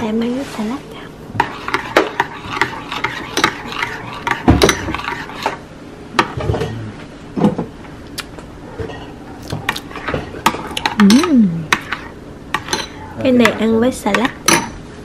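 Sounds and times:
spoon stirring in a ceramic bowl: 1.3s - 5.6s, 8.8s - 14.8s.

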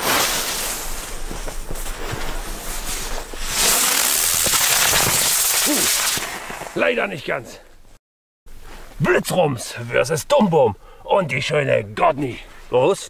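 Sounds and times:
firework hissing: 0.0s - 6.8s.

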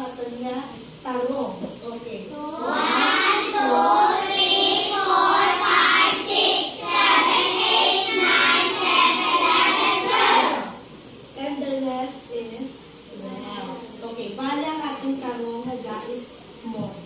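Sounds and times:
children's voices in unison: 2.3s - 10.8s.

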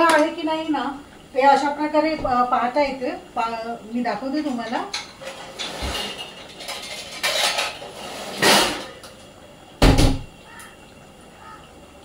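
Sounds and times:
cooking pots clattering: 4.3s - 9.2s.

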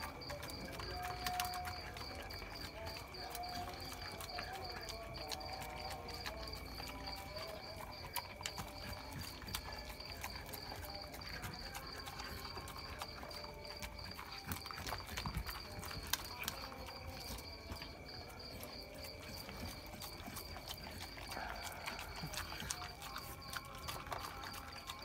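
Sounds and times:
dog chewing from a steel bowl: 0.0s - 25.0s.

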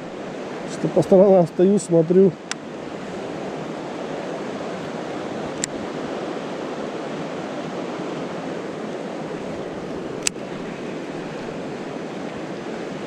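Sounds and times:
river flowing over stones: 0.0s - 13.0s
sharp click: 5.6s - 5.8s, 10.2s - 10.4s.

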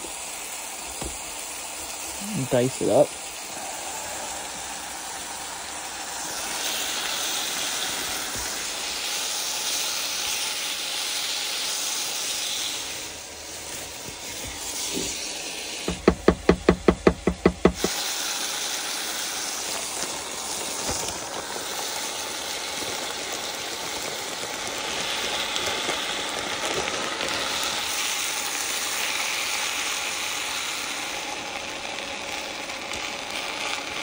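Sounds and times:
food sizzling in a pot: 0.0s - 34.0s
rapid knocks: 15.9s - 17.9s.

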